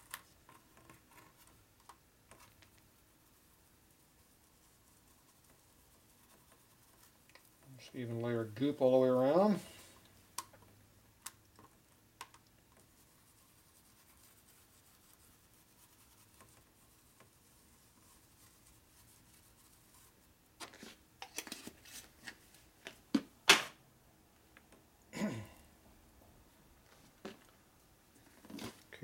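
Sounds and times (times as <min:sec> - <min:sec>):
hands scraping and rustling: 0:12.3 - 0:23.3, 0:28.2 - 0:29.0.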